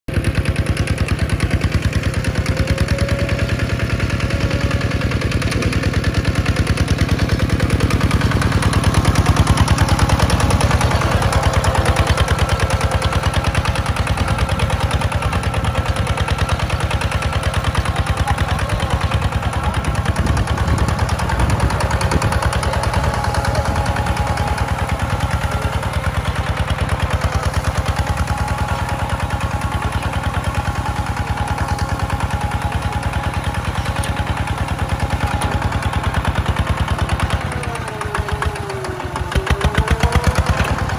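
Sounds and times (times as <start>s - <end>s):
diesel engine running under load: 0.1s - 40.9s.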